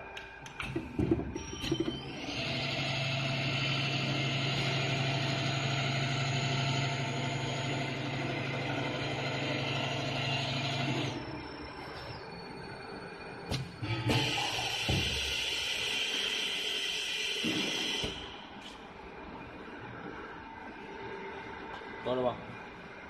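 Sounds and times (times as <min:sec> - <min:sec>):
pump humming and hissing: 0:13.5 - 0:18.8.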